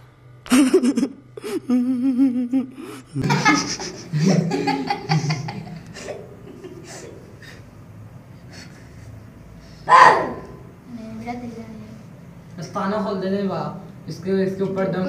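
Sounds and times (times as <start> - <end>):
boys laughing: 0.5 - 7.8.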